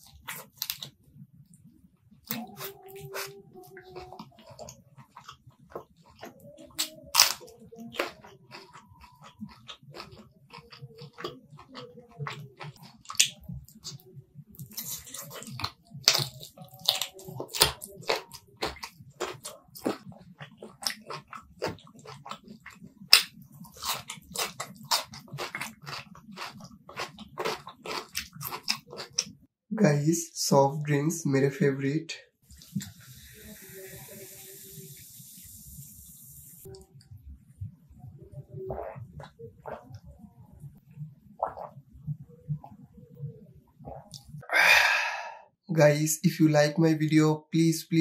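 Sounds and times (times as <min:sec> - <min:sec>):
wet chewing: 0:00.0 - 0:29.5, 0:37.9 - 0:43.2
lip smacks and mouth clicks: 0:04.0 - 0:14.0, 0:14.6 - 0:29.4, 0:41.4 - 0:42.9, 0:43.8 - 0:44.4.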